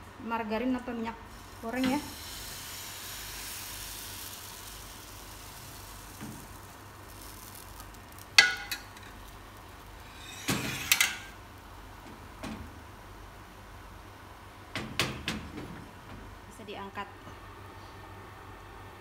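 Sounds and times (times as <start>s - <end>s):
frying pan knocking on stove grate: 8.4s - 9.1s.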